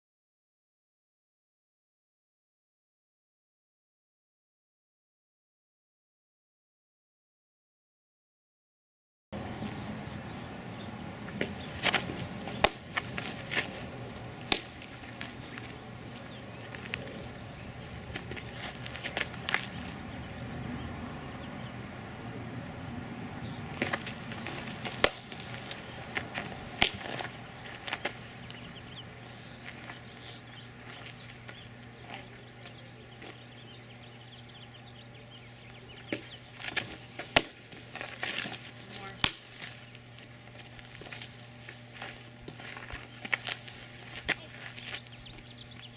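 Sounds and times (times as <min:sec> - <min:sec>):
small birds chirping: 0:09.4 - 0:12.8, 0:14.1 - 0:24.2, 0:25.2 - 0:45.9
steady low hum: 0:09.4 - 0:45.9
ball popping into mitt: 0:24.8 - 0:25.5, 0:26.8 - 0:27.3
ball smacking into catcher's mitt: 0:26.8 - 0:27.2.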